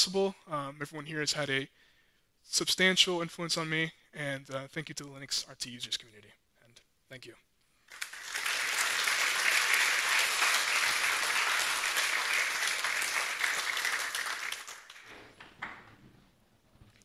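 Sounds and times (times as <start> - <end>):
audience applauding: 7.9 - 15.9.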